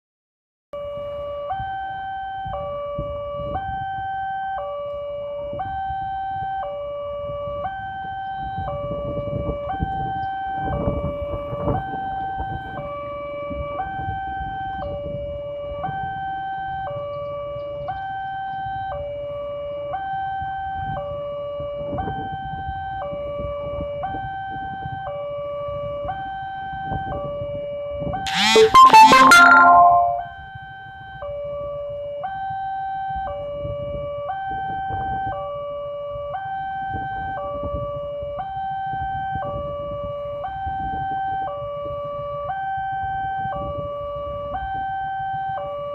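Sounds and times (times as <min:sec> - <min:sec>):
level crossing two-tone alarm: 0:28.3 - 0:30.3.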